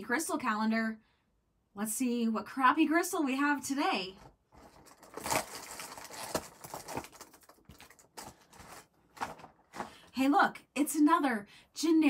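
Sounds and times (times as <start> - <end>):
fingers tearing cardboard: 4.8 - 7.4.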